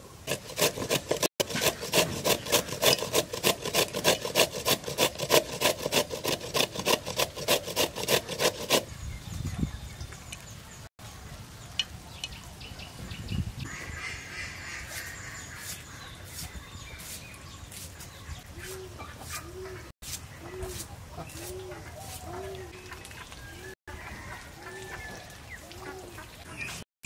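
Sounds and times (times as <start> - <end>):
birds chirping: 8.8 - 24.3, 24.9 - 26.8.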